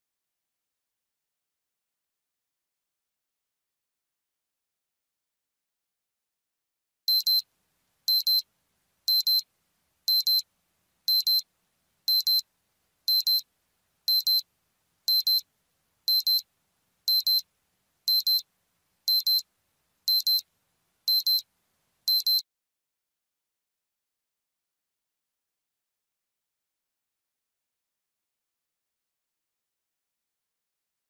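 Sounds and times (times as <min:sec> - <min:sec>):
digital alarm double beep: 0:07.1 - 0:07.4, 0:08.1 - 0:08.4, 0:09.1 - 0:09.4, 0:10.1 - 0:10.4, 0:11.1 - 0:11.4, 0:12.1 - 0:12.4, 0:13.1 - 0:13.4, 0:14.1 - 0:14.4, 0:15.1 - 0:15.4, 0:16.1 - 0:16.4, 0:17.1 - 0:17.4, 0:18.1 - 0:18.4, 0:19.1 - 0:19.4, 0:20.1 - 0:20.4, 0:21.1 - 0:21.4, 0:22.1 - 0:22.4.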